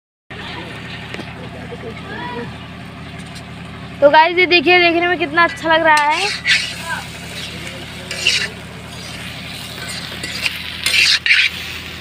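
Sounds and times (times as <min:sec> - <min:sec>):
fish frying and sizzling: 0:00.3 - 0:12.0
metal spatula scraping pan: 0:05.4 - 0:12.0.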